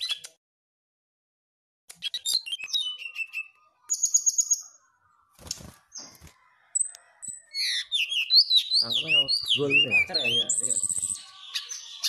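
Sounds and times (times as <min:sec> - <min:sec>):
bird singing: 0:02.0 - 0:12.0
wing flutter: 0:05.3 - 0:06.6.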